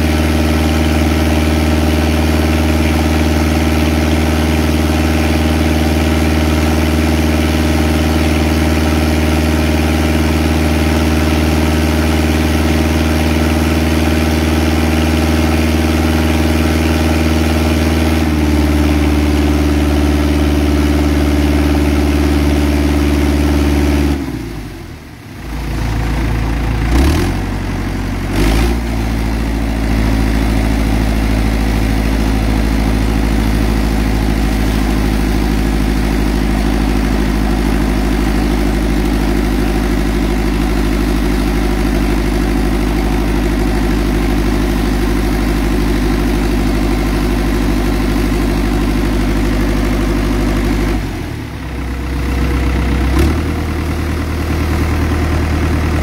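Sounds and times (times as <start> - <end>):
water pump engine running: 0.0 - 56.0.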